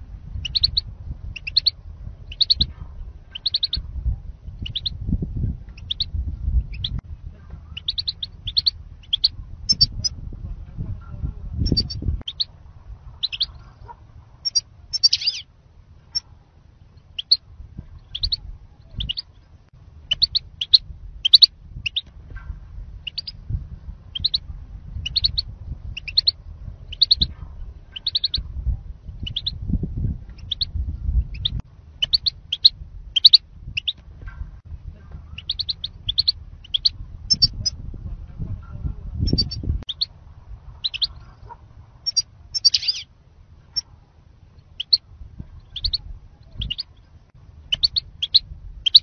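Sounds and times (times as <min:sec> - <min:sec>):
low rumble: 0:00.0 - 0:49.0
bird chirping: 0:00.4 - 0:02.7, 0:03.3 - 0:03.8, 0:04.6 - 0:05.0, 0:05.8 - 0:07.0, 0:07.7 - 0:10.1, 0:11.6 - 0:12.5, 0:13.1 - 0:15.5, 0:16.9 - 0:17.4, 0:18.0 - 0:19.5, 0:20.1 - 0:22.1, 0:23.0 - 0:23.4, 0:24.1 - 0:24.4, 0:25.0 - 0:27.3, 0:27.9 - 0:28.4, 0:29.2 - 0:29.6, 0:30.4 - 0:34.0, 0:35.3 - 0:37.7, 0:39.2 - 0:40.1, 0:40.8 - 0:43.1, 0:44.6 - 0:45.0, 0:45.6 - 0:49.0.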